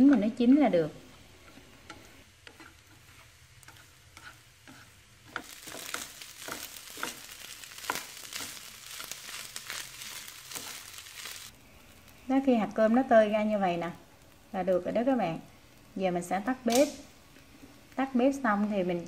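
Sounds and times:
rice sizzling in a pan: 0.0s - 19.0s
spatula scraping a pan: 1.2s - 11.5s.

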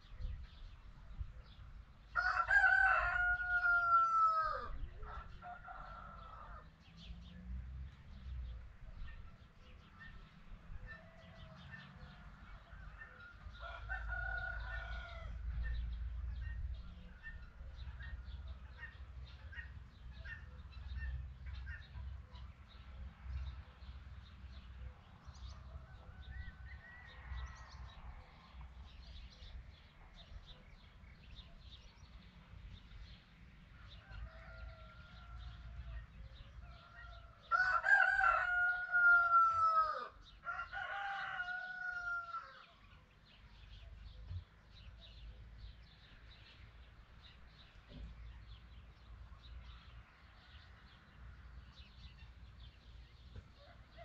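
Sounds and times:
rooster crowing: 2.2s - 6.7s, 10.9s - 15.5s, 25.7s - 27.8s, 33.8s - 36.0s, 36.6s - 42.7s.

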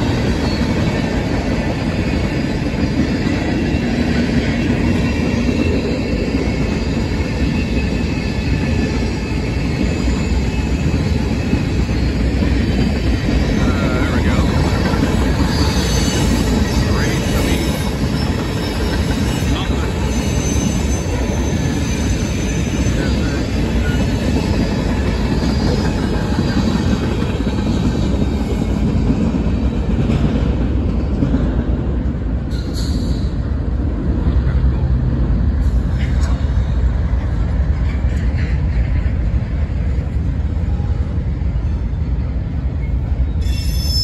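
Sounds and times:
steel wheels rumbling on rail: 0.0s - 44.0s
high wheel squeal: 2.1s - 26.8s, 42.8s - 44.0s.

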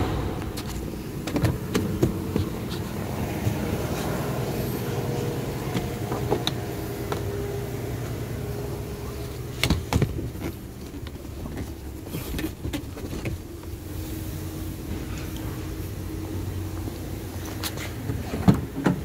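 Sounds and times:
sharp knocks: 0.0s - 2.5s
car engine idling: 0.0s - 19.0s.

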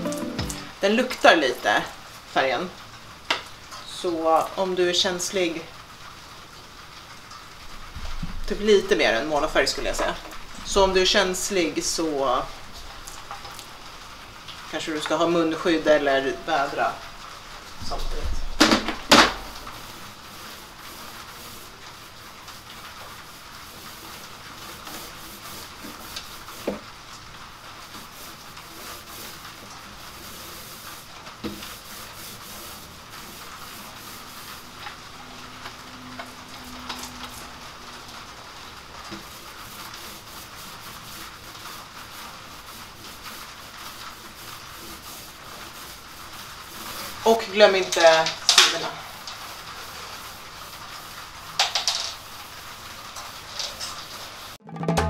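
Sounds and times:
paint roller rubbing hiss: 19.5s - 54.6s.

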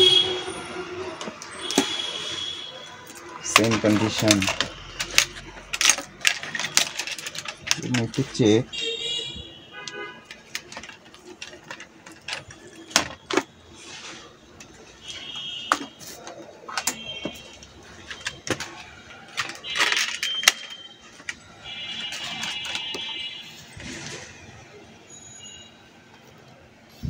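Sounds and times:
clicks of handling computer parts: 3.0s - 8.9s, 9.8s - 13.6s, 14.5s - 23.3s.

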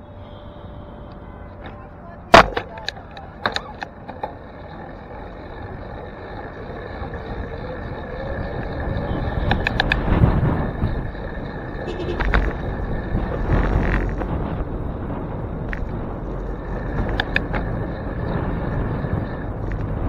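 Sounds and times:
city traffic: 0.0s - 20.0s
wind and tyre noise: 0.0s - 20.0s
bike clicks and knocks: 1.6s - 4.4s, 9.4s - 10.2s, 13.5s - 14.4s, 16.8s - 17.8s.

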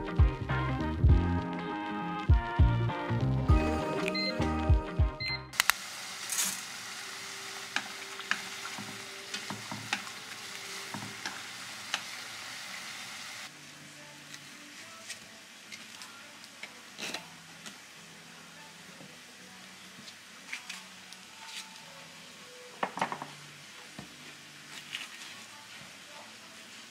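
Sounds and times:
water boiling hard in a pan: 5.6s - 13.5s
chopsticks clicking against pan: 9.3s - 10.1s, 10.9s - 12.1s.

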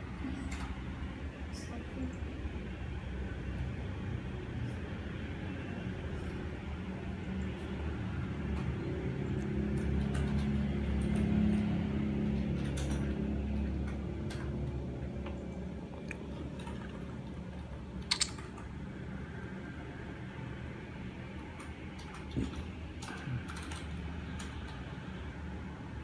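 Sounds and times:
small handling clicks and taps: 18.1s - 18.4s.

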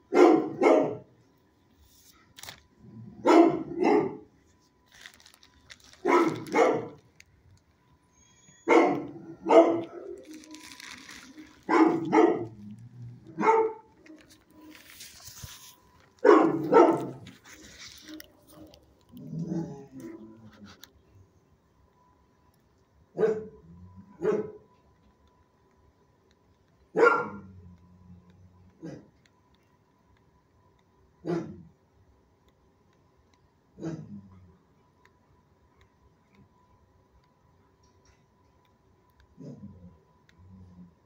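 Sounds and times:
dog barking: 0.1s - 1.1s, 3.2s - 4.3s, 6.0s - 7.0s, 8.6s - 10.2s, 11.6s - 12.6s, 13.3s - 13.9s, 16.2s - 17.2s, 23.2s - 23.6s, 24.2s - 24.7s, 26.9s - 27.5s, 31.2s - 31.6s.

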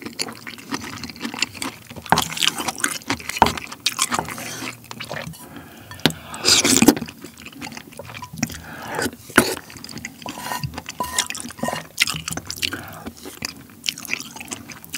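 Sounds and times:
wet chewing with smacking: 0.0s - 14.9s
wet slurp from spoon: 7.7s - 13.5s.

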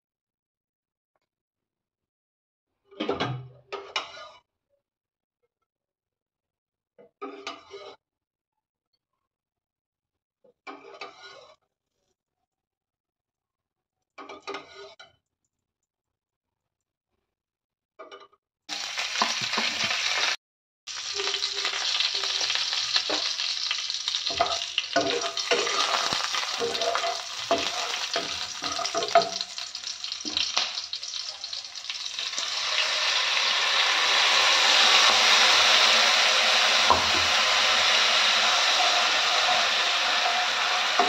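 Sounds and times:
hot oil sizzling: 18.7s - 41.0s
spatula scraping and tapping pan: 19.1s - 20.2s, 21.1s - 32.6s.

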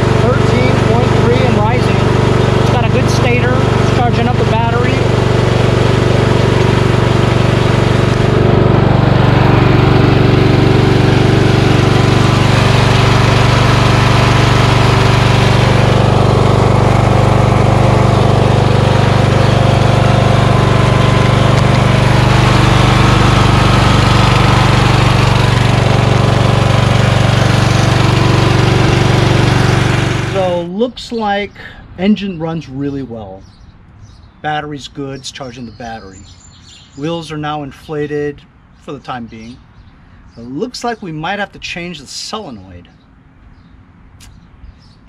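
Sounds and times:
lawn tractor engine running: 0.0s - 30.8s.

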